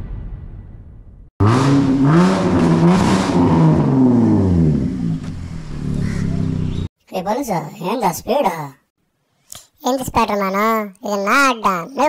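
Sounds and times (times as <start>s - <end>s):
car engine revving: 1.4s - 6.9s.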